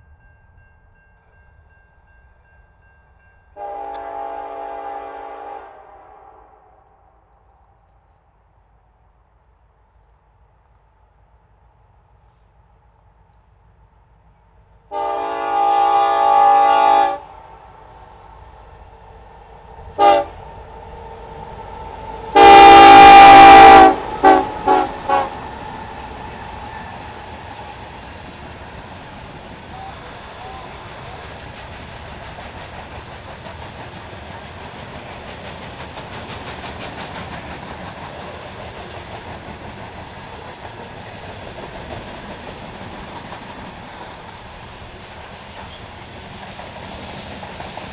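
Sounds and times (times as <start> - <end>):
locomotive air horn: 3.6 - 7.0, 14.9 - 17.3, 20.0 - 20.4, 22.3 - 25.4
wheels clacking over rail joints: 24.0 - 47.9.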